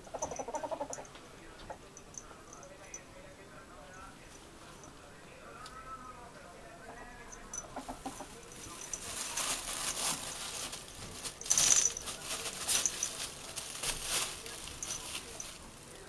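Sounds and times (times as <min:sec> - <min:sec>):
collar tinkling: 0:00.0 - 0:05.8, 0:06.8 - 0:16.0
plastic bag crinkling: 0:08.4 - 0:16.0.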